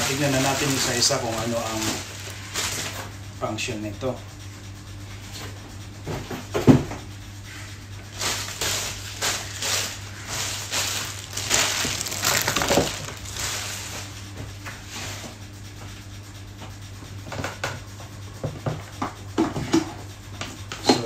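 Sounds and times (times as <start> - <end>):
packaging rustling and scraping: 0.0 - 3.0, 8.3 - 13.9.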